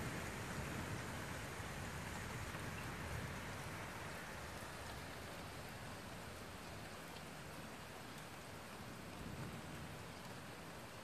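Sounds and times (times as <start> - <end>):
thunder rumble: 0.0 - 4.1
rain hissing: 0.0 - 11.0.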